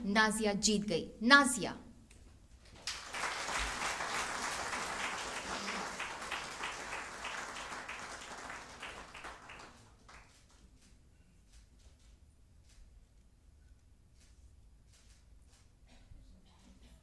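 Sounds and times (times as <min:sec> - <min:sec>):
audience applauding: 0:02.8 - 0:10.6.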